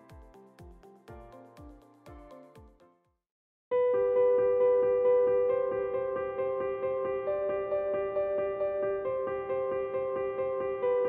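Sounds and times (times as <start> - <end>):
instrumental background music: 0.0 - 3.1.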